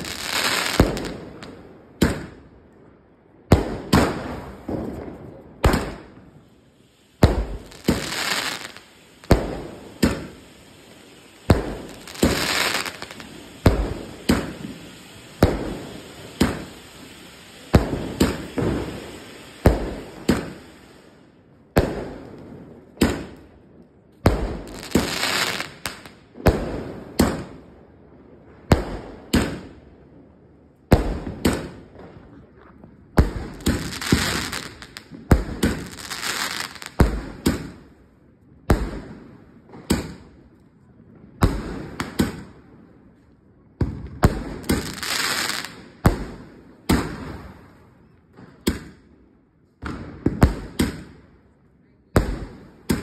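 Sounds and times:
firework bangs: 0.0 - 2.5, 3.4 - 23.5, 24.2 - 27.8, 28.4 - 30.2, 30.9 - 37.9, 38.6 - 40.4, 41.4 - 42.7, 43.8 - 49.1, 49.8 - 51.3, 52.1 - 53.0
firework crackling: 0.0 - 2.5, 3.4 - 38.0, 43.8 - 49.0.

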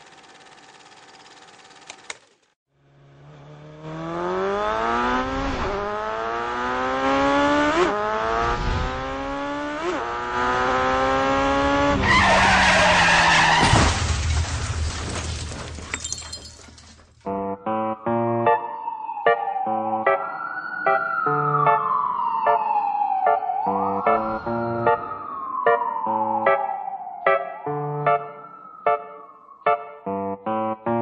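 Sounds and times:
car engine accelerating: 0.0 - 13.6.

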